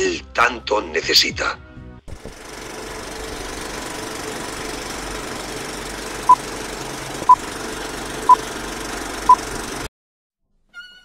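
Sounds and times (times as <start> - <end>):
film projector rattle and hiss: 2.2 - 9.9.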